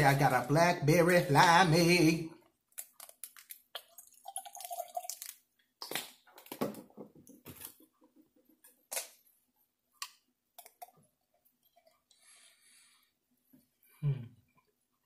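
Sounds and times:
liquid splashing and dripping: 2.8 - 6.6.

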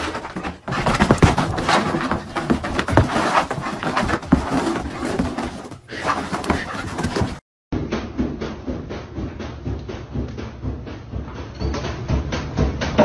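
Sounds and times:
dog scrambling on carpet: 0.0 - 7.4.

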